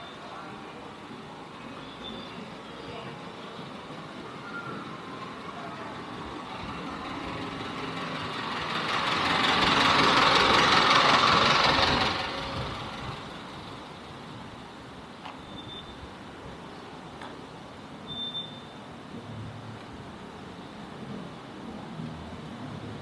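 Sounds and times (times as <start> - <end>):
vehicle passing by: 6.0 - 13.4.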